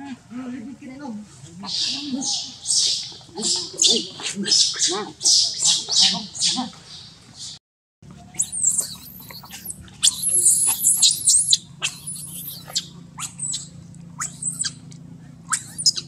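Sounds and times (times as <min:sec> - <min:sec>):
infant monkeys squealing: 0:01.6 - 0:06.7, 0:08.2 - 0:14.8, 0:15.4 - 0:16.0.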